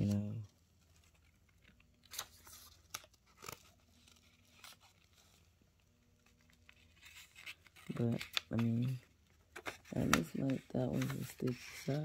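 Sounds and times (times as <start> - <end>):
faint crackles of transfer sheet: 0.0 - 12.0.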